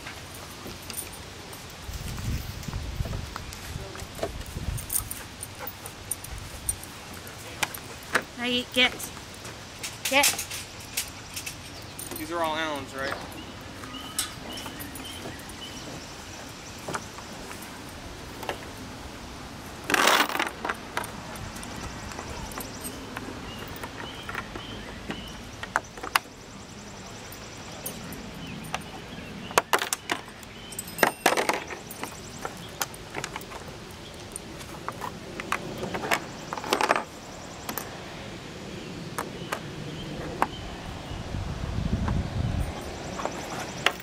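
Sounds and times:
metal hardware and wrench clinking: 9.8s - 15.8s, 29.7s - 34.5s.

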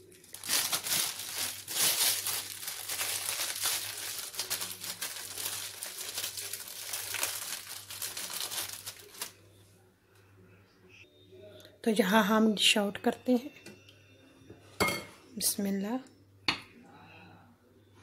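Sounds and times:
packaging crinkling and rustling: 0.0s - 9.4s.

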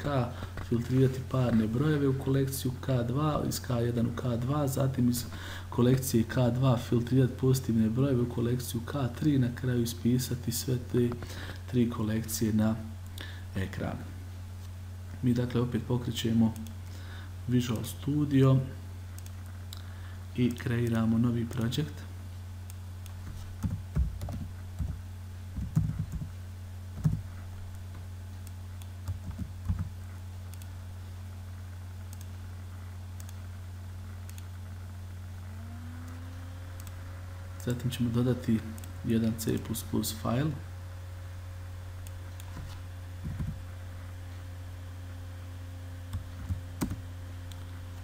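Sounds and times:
steady low hum: 0.0s - 48.0s
keyboard typing: 23.2s - 25.0s, 25.6s - 26.3s, 27.0s - 27.2s, 29.0s - 29.9s.

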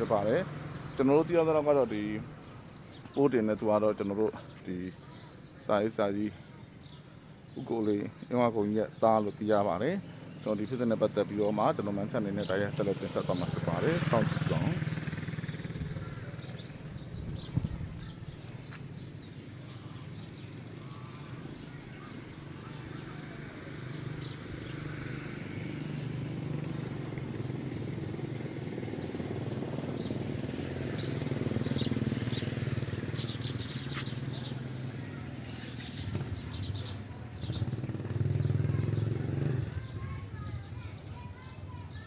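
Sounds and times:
small birds chirping: 0.0s - 42.0s
motorcycle engine humming: 9.0s - 41.9s.

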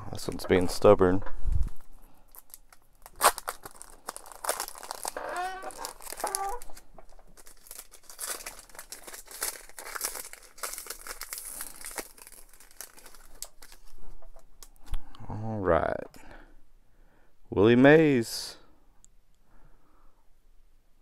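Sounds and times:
card pack wrapper crinkling: 1.7s - 14.0s.

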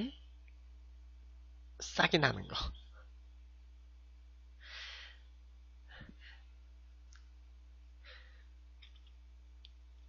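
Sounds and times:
low electrical hum: 0.0s - 10.0s
soft breath: 4.6s - 5.3s, 5.9s - 6.6s, 8.0s - 8.6s
faint clicks: 8.8s - 10.0s.

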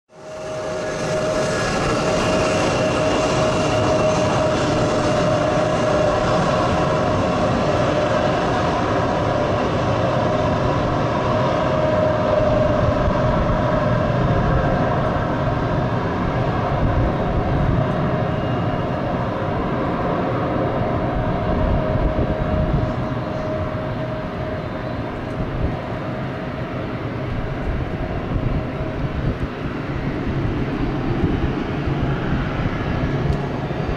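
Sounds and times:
jet engines rumbling and whining: 0.1s - 33.9s.

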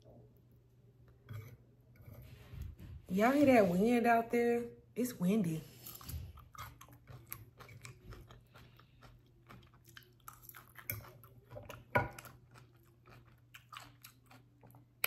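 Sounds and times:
person chewing food: 5.8s - 15.0s.

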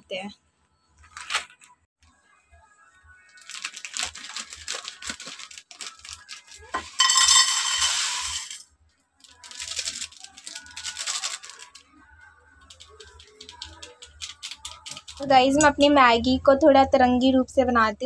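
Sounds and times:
foil sachet crinkling: 1.0s - 1.7s, 3.3s - 8.5s, 9.2s - 11.9s, 12.7s - 15.3s
plastic packet crinkling: 3.4s - 7.0s, 9.2s - 11.9s, 12.7s - 15.3s
dry noodles rattling into saucepan: 3.5s - 8.6s, 9.3s - 11.8s, 12.7s - 15.3s.

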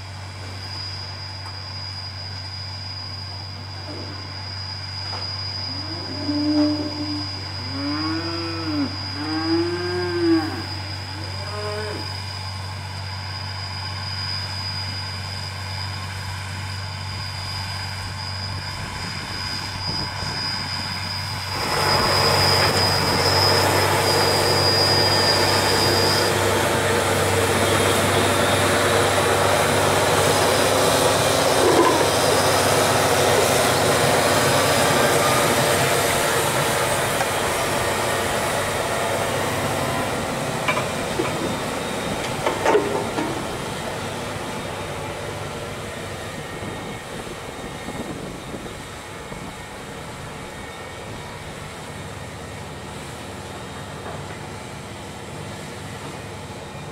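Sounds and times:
thin high whine: 0.0s - 56.9s
tractor engine drone: 0.0s - 56.9s
implements working soil: 14.5s - 47.4s.

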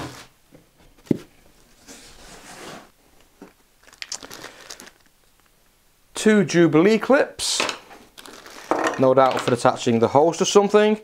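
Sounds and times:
plastic packaging rustling: 2.0s - 5.5s, 8.2s - 9.7s.

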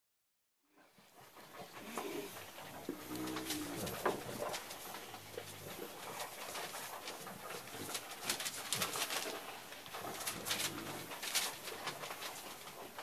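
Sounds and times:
puppies grunting: 0.8s - 13.0s
paws scuffling on carpet and paper: 1.3s - 13.0s.

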